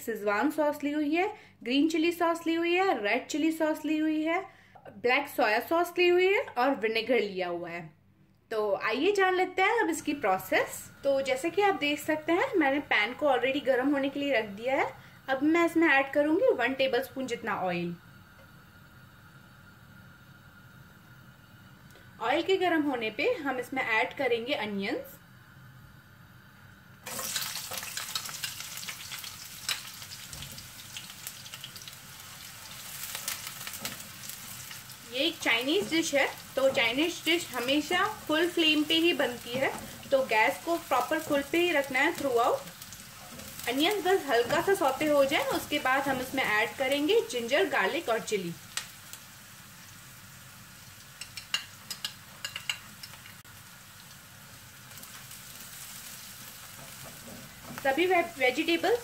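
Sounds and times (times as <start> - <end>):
onions sizzling in oil: 9.0 - 59.0
spatula stirring: 32.6 - 38.5, 41.2 - 46.6, 55.0 - 58.4.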